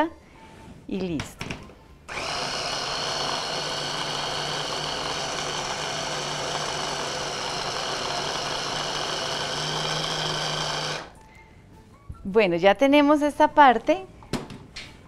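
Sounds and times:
hand blender motor whine: 2.1s - 11.2s.

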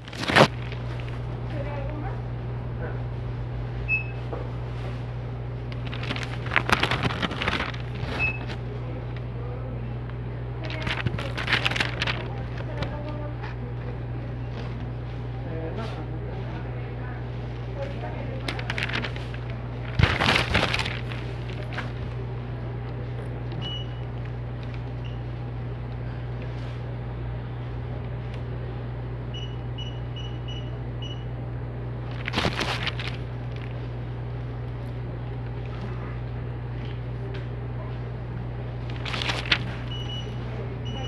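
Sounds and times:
paper crinkling and rustling: 0.0s - 1.3s, 4.8s - 8.7s, 10.6s - 13.6s, 17.5s - 22.3s, 32.1s - 34.0s, 38.8s - 40.4s
steady low hum: 0.0s - 41.0s.

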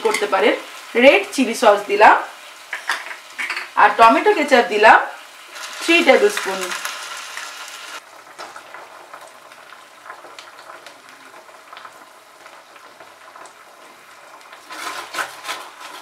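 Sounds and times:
onion sizzling in hot oil: 0.0s - 16.0s
metal spoon scraping pan: 14.7s - 16.0s.

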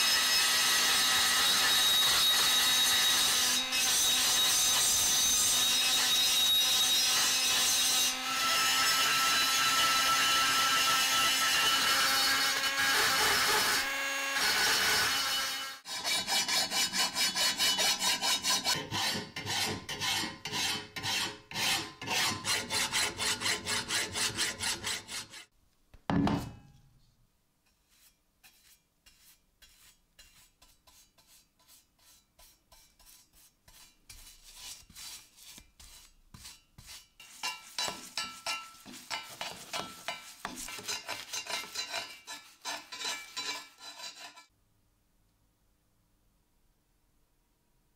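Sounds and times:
hand file rasping on metal: 0.0s - 25.5s, 27.7s - 44.5s
rotary tool grinding metal: 0.0s - 25.5s, 36.5s - 44.5s.

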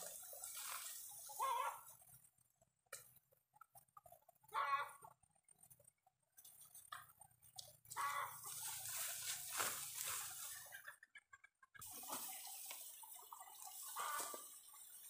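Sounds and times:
dry rice stalks rustling: 0.0s - 1.8s, 7.6s - 10.8s, 13.5s - 15.0s.

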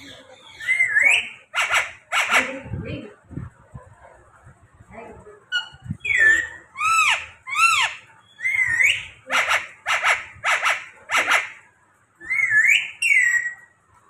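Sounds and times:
parakeet whistling: 0.0s - 2.5s, 5.5s - 11.6s, 12.2s - 13.7s
parakeet harsh calls: 0.0s - 2.8s, 5.5s - 11.7s.

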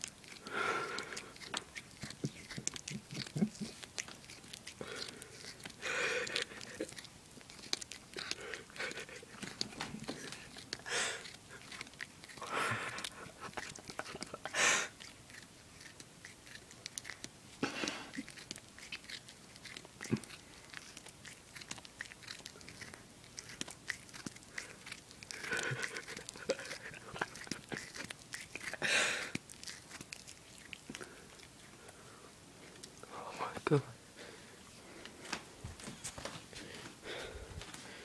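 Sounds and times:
cat chewing on string: 0.0s - 33.1s.

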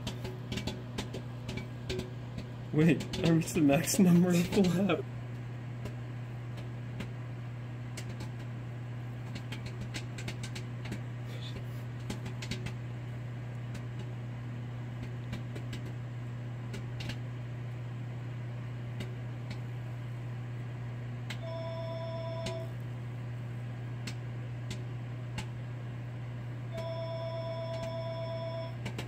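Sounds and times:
popcorn kernels popping: 0.0s - 12.9s, 14.9s - 17.3s, 28.8s - 29.0s
microwave oven humming: 0.0s - 29.0s.

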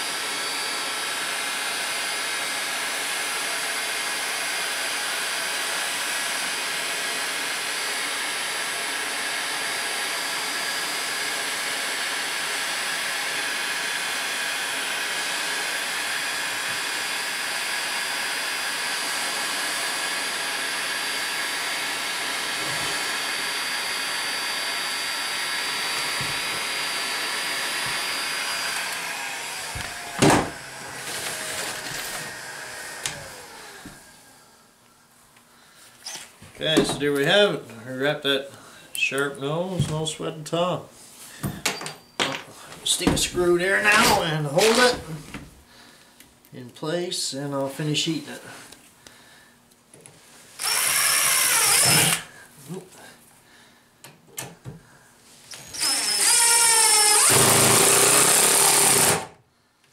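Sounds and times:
heat gun blowing: 0.0s - 34.7s, 35.9s - 36.9s, 50.5s - 52.8s, 55.4s - 59.4s.

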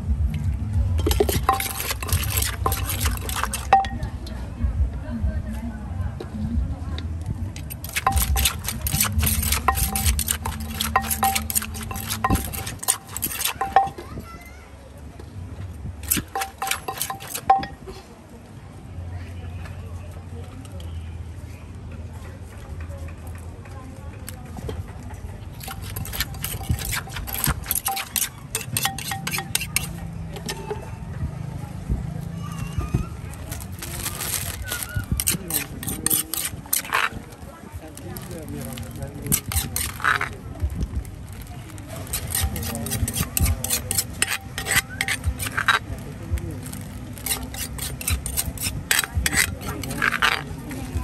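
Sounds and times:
spoon clinking on rim: 1.0s - 4.0s, 7.6s - 14.0s, 16.0s - 17.8s, 25.6s - 30.8s, 42.1s - 45.8s
pestle knocking in mortar: 1.0s - 4.1s, 7.6s - 14.1s, 16.0s - 17.8s, 25.6s - 30.8s.

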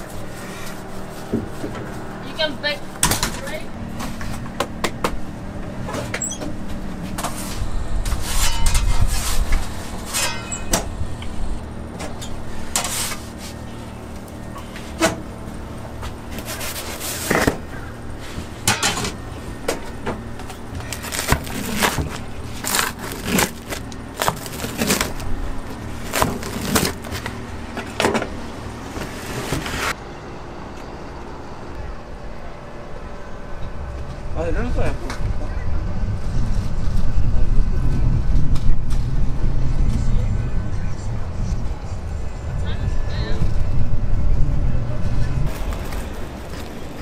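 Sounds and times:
steady low hum: 0.0s - 47.0s
metal pizza peel knocking and scraping: 8.1s - 10.9s
low rumble: 29.9s - 47.0s.

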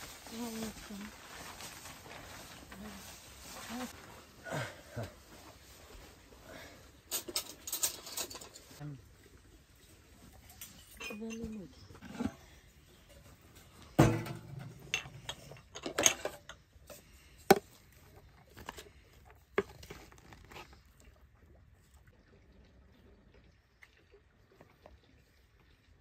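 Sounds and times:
hard objects knocking and clattering: 13.7s - 16.6s.

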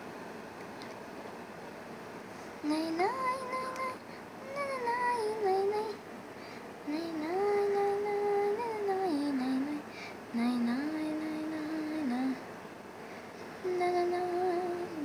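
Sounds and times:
high voice singing held notes: 2.6s - 5.9s.

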